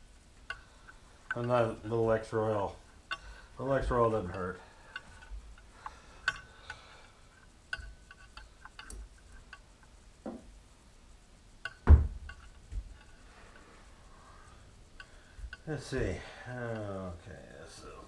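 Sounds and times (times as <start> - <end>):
light metallic clicks and clinks: 0.1 - 10.6, 11.2 - 18.0
heavy metal knock: 11.8 - 12.5.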